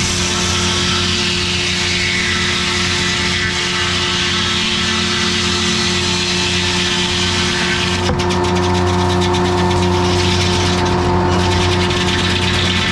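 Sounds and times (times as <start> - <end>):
circular saw blade ripping log: 0.0 - 12.9
diesel engine drone under load: 5.0 - 12.9.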